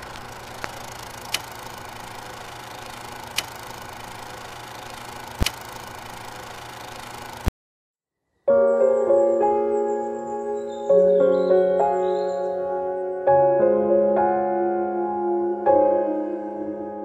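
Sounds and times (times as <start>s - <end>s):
film projector whirring: 0.0s - 7.5s.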